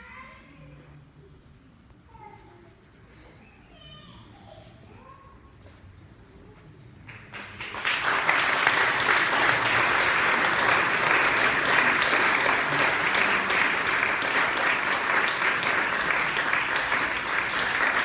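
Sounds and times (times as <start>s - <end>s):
audience applauding: 7.0s - 18.0s.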